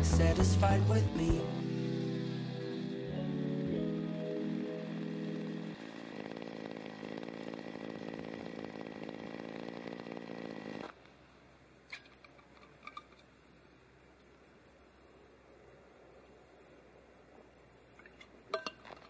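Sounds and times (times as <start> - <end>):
brush cutter engine running: 0.0 - 11.0
insects chirping: 0.3 - 6.8, 10.8 - 19.0.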